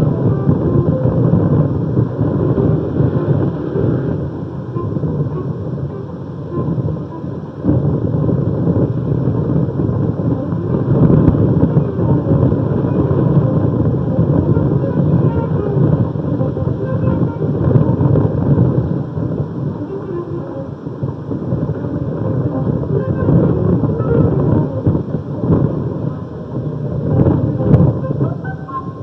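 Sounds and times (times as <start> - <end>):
city street traffic rumble: 0.0 - 29.0.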